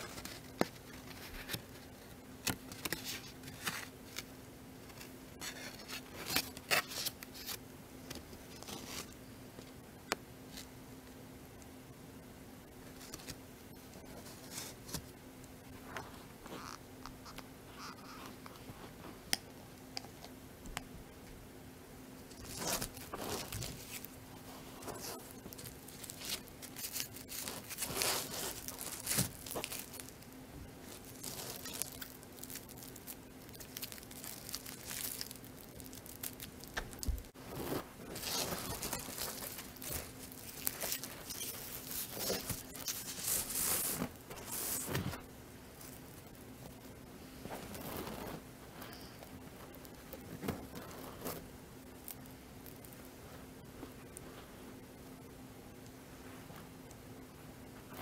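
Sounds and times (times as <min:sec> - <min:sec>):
paper crinkling and tearing: 0:00.0 - 0:04.3, 0:04.9 - 0:07.6, 0:22.3 - 0:45.2.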